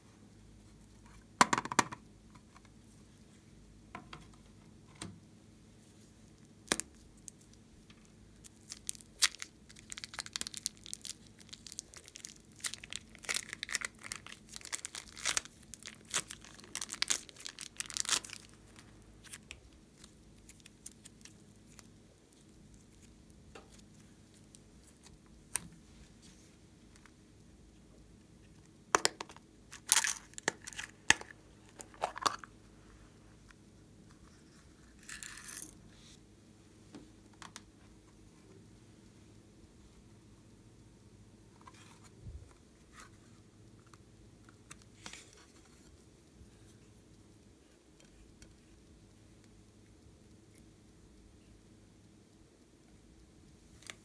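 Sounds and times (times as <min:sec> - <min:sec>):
small crackles and crinkles: 0:02.2 - 0:40.6, 0:41.4 - 0:54.0
plastic case crackle: 0:08.7 - 0:21.3.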